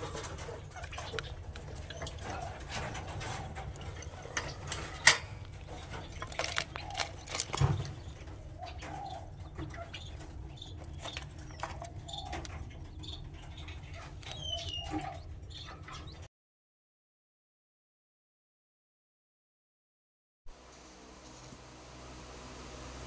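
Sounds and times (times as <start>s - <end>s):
wire cage rattling: 0.0s - 16.0s
birds cooing: 0.0s - 16.3s.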